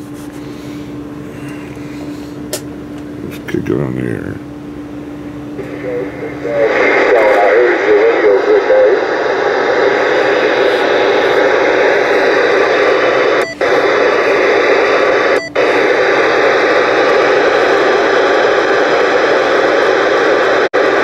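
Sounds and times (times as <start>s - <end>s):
radio static hiss: 5.6s - 21.0s.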